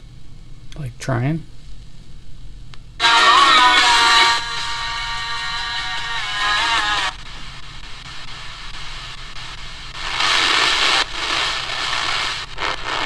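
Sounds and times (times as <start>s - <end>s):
radio static: 6.8s - 13.0s.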